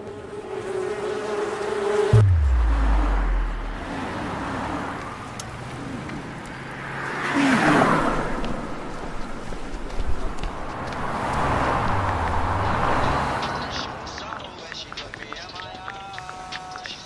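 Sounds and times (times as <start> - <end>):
vehicle passing: 0.0 - 9.6, 10.4 - 14.1
street traffic noise: 0.0 - 17.0
deep low boom: 2.2 - 4.1.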